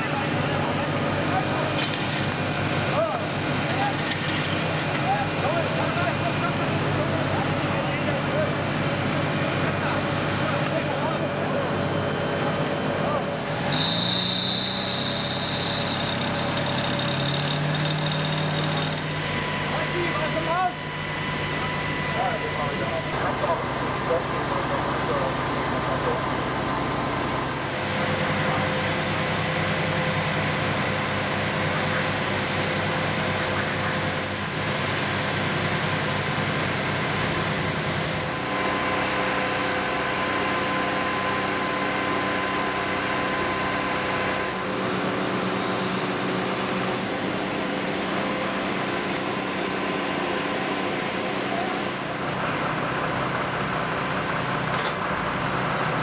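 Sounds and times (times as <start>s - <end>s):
diesel engines running: 0.0s - 56.0s
high whining tones: 13.6s - 23.2s.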